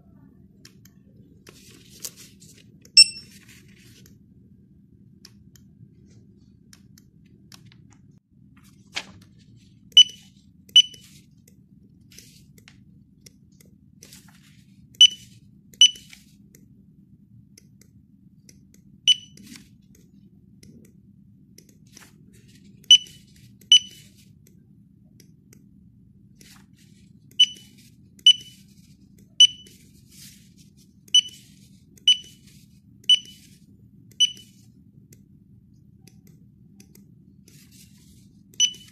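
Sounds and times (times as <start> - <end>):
barcode scanner beeps: 3.0 - 3.3, 9.9 - 11.1, 15.0 - 16.1, 19.1 - 19.5, 22.8 - 24.1, 27.4 - 28.6, 29.4 - 29.8, 31.1 - 33.5, 34.2 - 34.7, 38.6 - 38.9.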